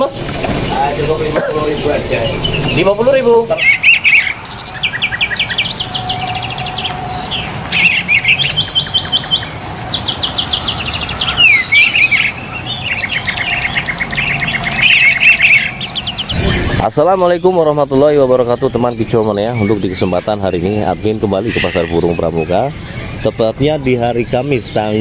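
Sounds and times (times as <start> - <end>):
songbirds chirping and trilling: 0.0 - 25.0.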